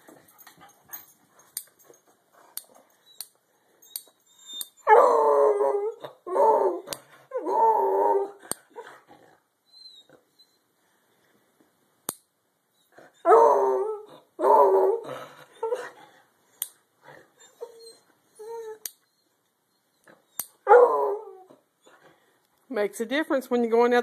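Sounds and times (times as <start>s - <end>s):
dog howling: 4.9s - 8.4s, 13.2s - 15.9s, 20.7s - 21.5s
dog yelping: 20.6s - 21.4s.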